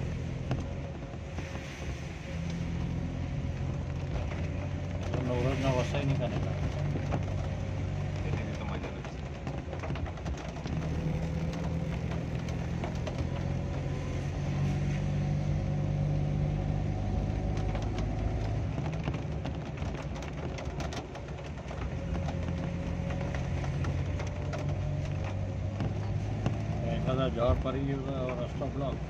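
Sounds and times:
car engine running: 0.0 - 29.0.

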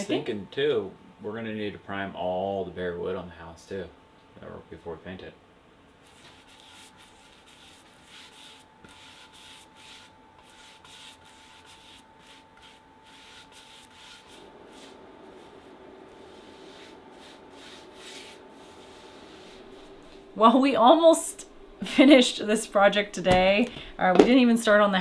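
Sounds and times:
faint steady hum: 0.0 - 25.0
paintbrush bristle swish: 6.0 - 20.2.

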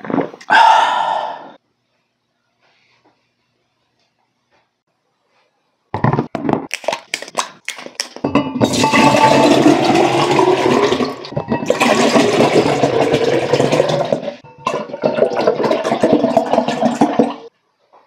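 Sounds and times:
water pouring into a glass: 8.6 - 17.5.

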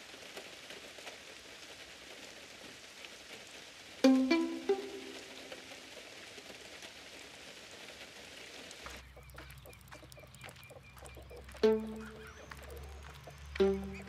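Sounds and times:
plucked string note: 4.0 - 5.6.

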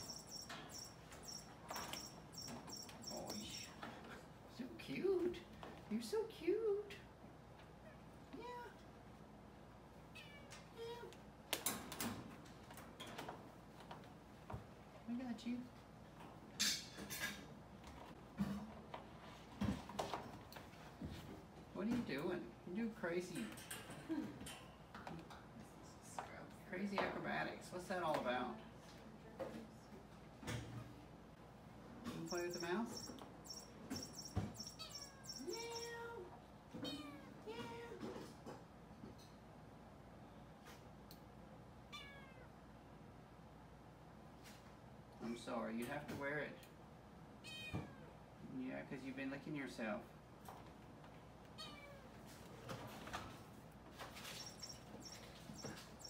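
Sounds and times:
clicks and rattles on metal bars: 23.3 - 25.4
kitten meowing: 34.6 - 36.1, 41.9 - 42.4.

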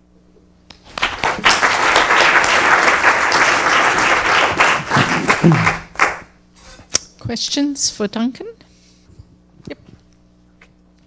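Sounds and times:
audience applauding: 0.8 - 6.3.

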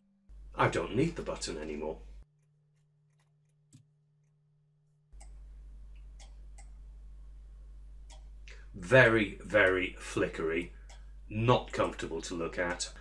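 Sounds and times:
low steady hum: 0.0 - 2.3, 5.1 - 13.0.

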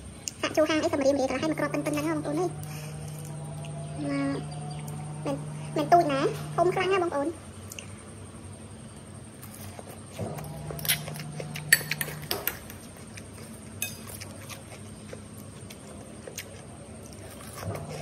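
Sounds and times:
low hum: 0.0 - 18.0
metal spoon clinking on ceramic bowl: 11.7 - 12.7, 13.8 - 14.2.

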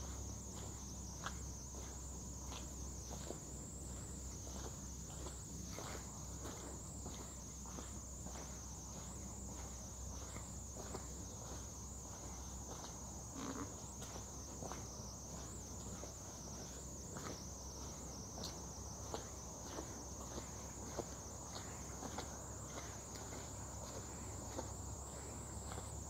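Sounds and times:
footsteps on concrete: 0.0 - 26.0.

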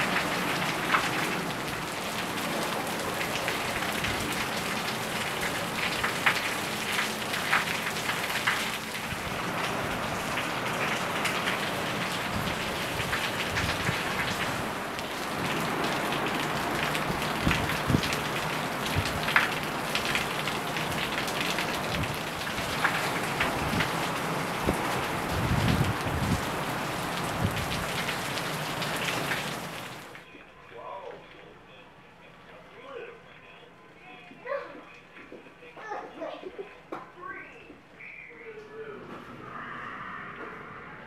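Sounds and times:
close drips and splats: 0.0 - 30.2
heavy rain pouring: 0.0 - 30.3.

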